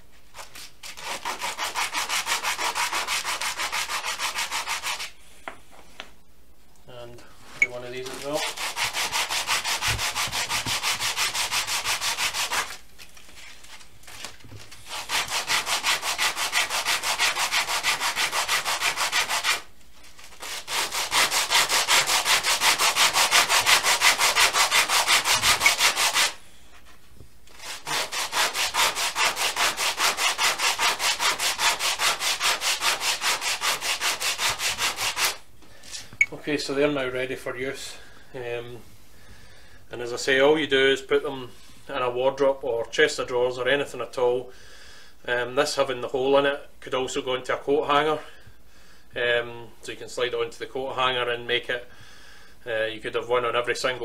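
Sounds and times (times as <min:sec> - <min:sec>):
wood block rasping on sandpaper: 0:00.4 - 0:05.2, 0:08.0 - 0:12.8, 0:14.8 - 0:26.4, 0:27.5 - 0:35.4.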